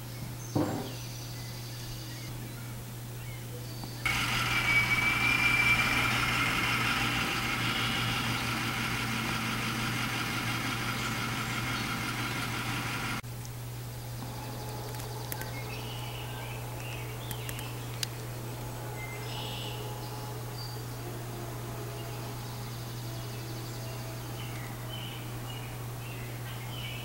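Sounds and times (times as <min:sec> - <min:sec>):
bus engine idling: 0:04.1 - 0:13.2.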